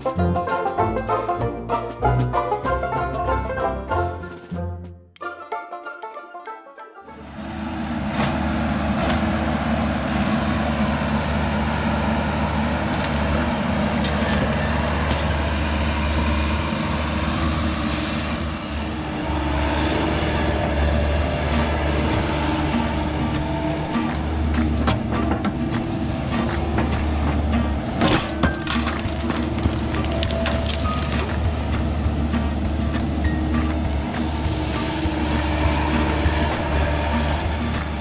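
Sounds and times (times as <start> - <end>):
excavator diesel engine running: 0.0 - 4.8, 7.1 - 38.0
woody brush snapping: 23.3 - 36.3.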